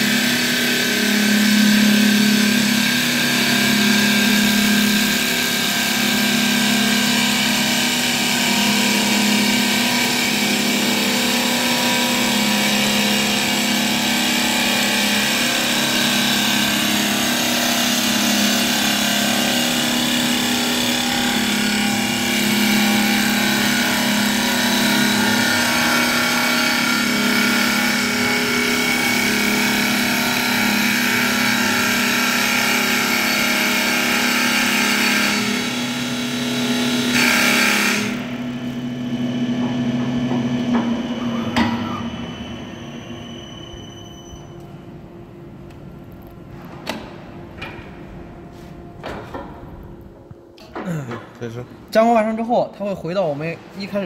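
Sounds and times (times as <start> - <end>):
wood lathe machine hum: 0.0 - 43.2.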